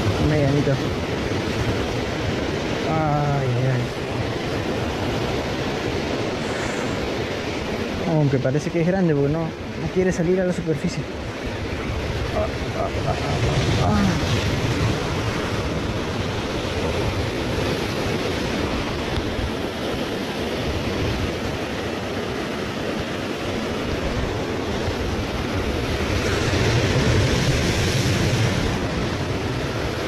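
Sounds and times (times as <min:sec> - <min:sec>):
surf breaking on cobble beach: 0:11.0 - 0:30.0.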